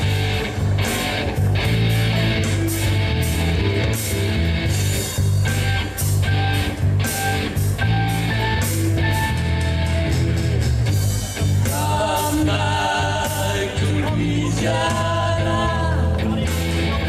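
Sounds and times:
blues band playing: 0.0 - 17.0
electric guitar: 0.0 - 17.0
person singing: 11.6 - 17.0.

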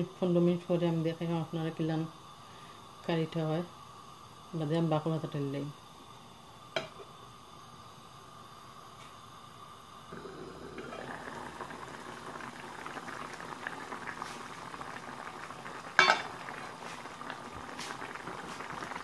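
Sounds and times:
curry bubbling in a pan: 10.1 - 19.0.

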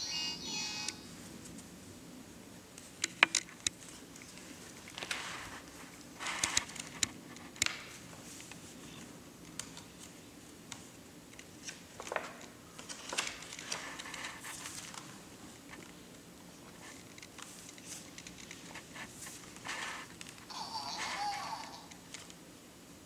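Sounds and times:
paper rustling: 11.6 - 15.9, 16.7 - 21.4.

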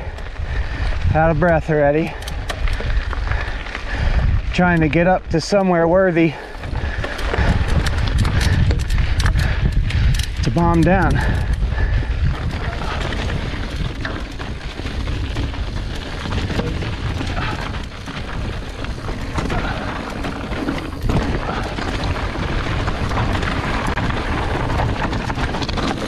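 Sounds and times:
low wind rumble on microphone: 0.0 - 26.0
bike knocks and rattles: 6.3 - 26.0
tyres crunching on gravel: 12.2 - 26.0.

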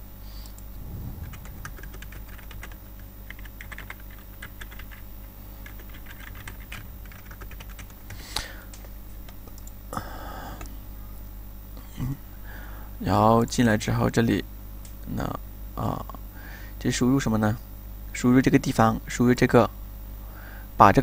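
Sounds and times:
typing on computer keyboard: 5.7 - 8.0.

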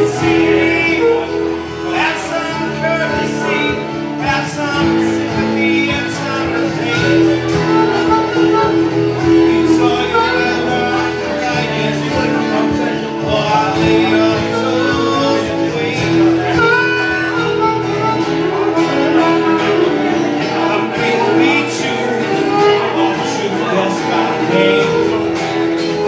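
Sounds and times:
harmonica solo: 0.0 - 4.3, 6.7 - 12.9, 16.1 - 26.0
strummed acoustic guitar: 0.0 - 26.0.

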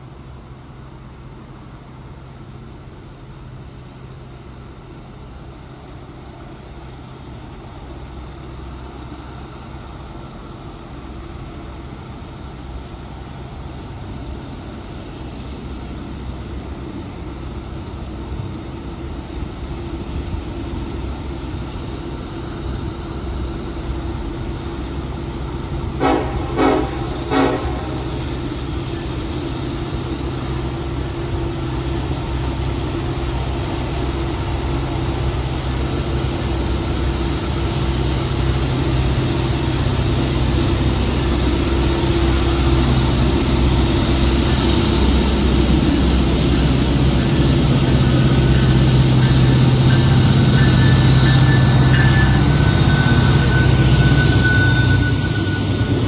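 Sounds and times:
diesel locomotive engine drone: 0.0 - 56.0
locomotive horn blasts: 26.0 - 28.0, 49.2 - 56.0.

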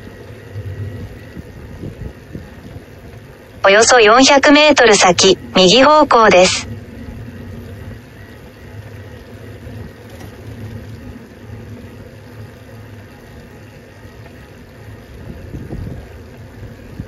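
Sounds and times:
vehicle rumbling on road: 6.7 - 17.0.

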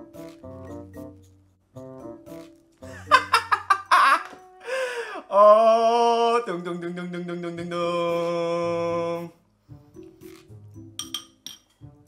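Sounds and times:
man singing long held notes: 5.2 - 9.4.

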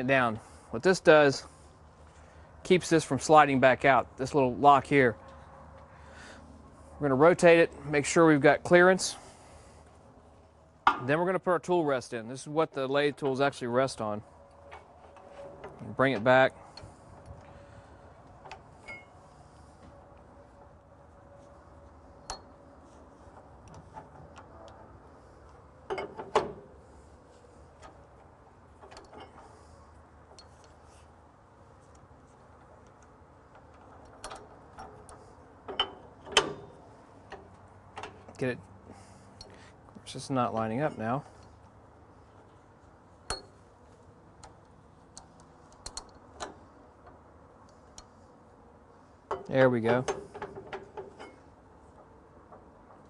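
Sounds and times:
metal clunks: 10.8 - 11.2, 25.9 - 26.7, 33.5 - 38.4, 43.2 - 43.6, 49.3 - 53.0
faint metal clicks and knocks: 14.4 - 53.0.

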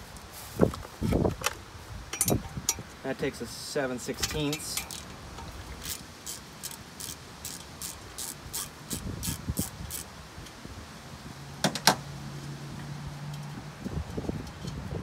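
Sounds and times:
socket ratchet clicking: 4.3 - 5.1, 5.8 - 10.1.

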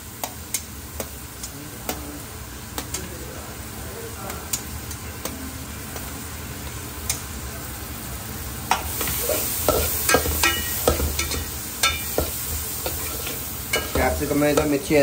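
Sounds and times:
vegetables sizzling in oil: 0.0 - 15.0
utensil clanging on pan: 8.7 - 15.0.

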